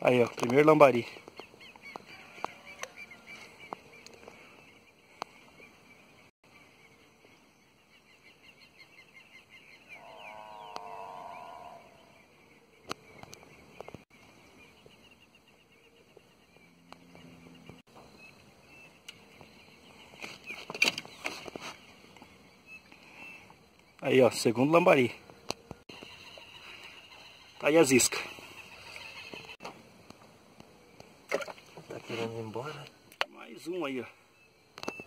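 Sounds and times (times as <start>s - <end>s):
faint birds chirping: 0.0s - 35.0s
wavering animal call: 9.9s - 12.2s.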